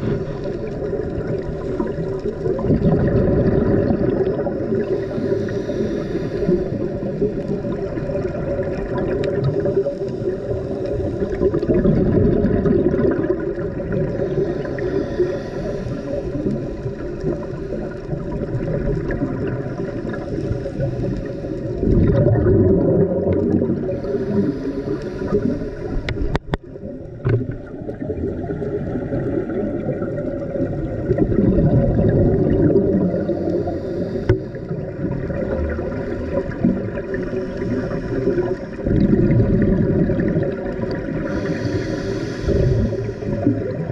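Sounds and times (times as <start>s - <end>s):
exhaled bubbles underwater: 0.0s - 43.9s
underwater regulator breathing: 4.5s - 7.6s, 9.2s - 11.8s, 13.9s - 22.0s, 23.5s - 26.6s, 32.9s - 35.0s, 35.6s - 39.6s, 41.0s - 43.9s.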